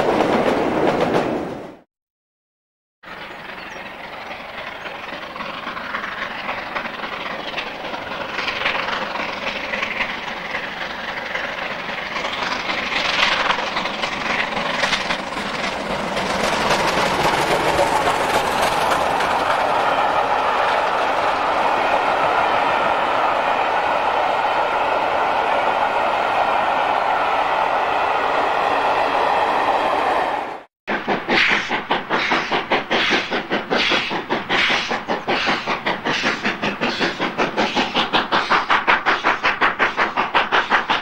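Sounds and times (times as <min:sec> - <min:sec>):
steam train passing: 0:00.0 - 0:01.8, 0:03.0 - 0:41.0
coach wheels clattering on rails: 0:03.1 - 0:21.7, 0:30.9 - 0:41.0.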